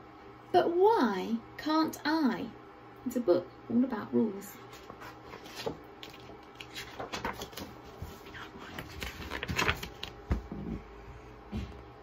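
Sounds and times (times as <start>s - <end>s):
book pages rustling: 4.6s - 10.6s.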